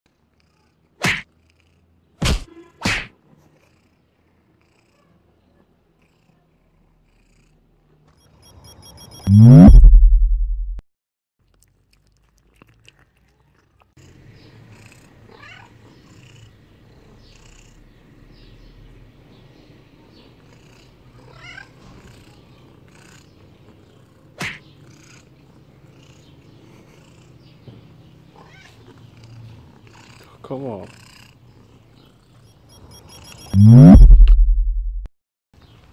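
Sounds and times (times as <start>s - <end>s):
low steady rumble: 9.3s - 10.8s, 33.6s - 35.1s
sharp click: 33.5s - 35.1s.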